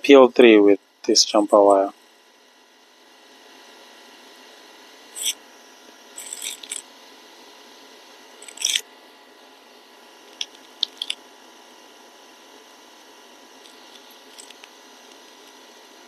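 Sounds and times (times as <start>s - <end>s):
scratchy snips and scrapes: 5.2s - 5.4s, 6.2s - 6.8s, 8.4s - 8.8s.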